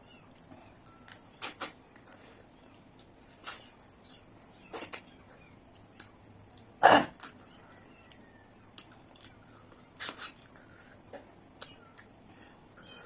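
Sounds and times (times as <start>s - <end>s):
person chewing: 5.9s - 12.1s.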